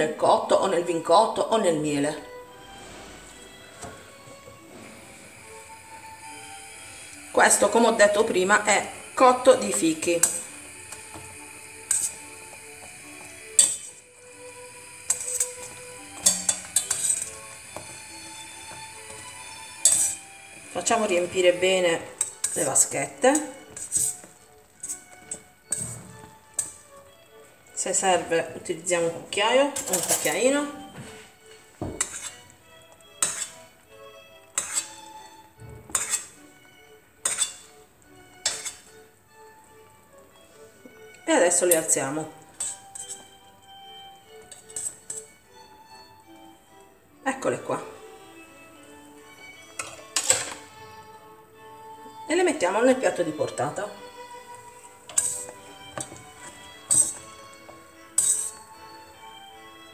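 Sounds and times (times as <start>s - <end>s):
soft background music: 0.0s - 59.9s
metal utensils clinking on a pot: 7.5s - 14.0s, 14.9s - 26.8s, 29.7s - 30.7s, 31.9s - 32.4s, 33.0s - 33.6s, 34.5s - 35.0s, 35.9s - 36.4s, 37.2s - 37.7s, 38.4s - 38.9s, 41.5s - 43.4s, 44.4s - 45.4s, 49.7s - 50.7s, 54.7s - 59.0s
metal tongs clacking on pan: 9.6s - 14.0s, 15.1s - 17.9s, 19.1s - 20.2s, 22.2s - 26.0s, 26.6s - 26.8s, 33.2s - 33.6s, 34.6s - 35.0s, 37.2s - 37.7s, 38.4s - 38.9s, 42.6s - 43.2s, 44.5s - 45.3s, 49.8s - 50.7s, 55.0s - 58.7s.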